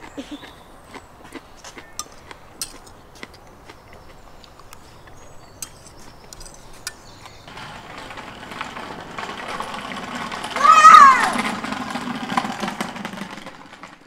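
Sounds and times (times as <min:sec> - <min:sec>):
scooter rolling over paving stones: 0:01.8 - 0:14.0
cutlery clicking on plates: 0:01.9 - 0:03.0, 0:05.6 - 0:07.1.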